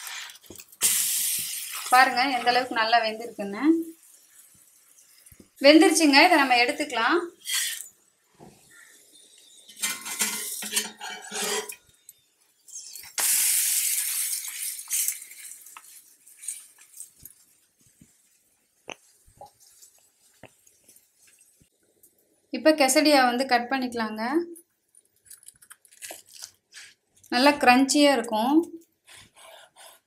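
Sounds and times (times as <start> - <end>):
loud hiss: 0.8 - 1.9, 13.2 - 15.1
spatula clattering on frying pan: 9.7 - 11.8.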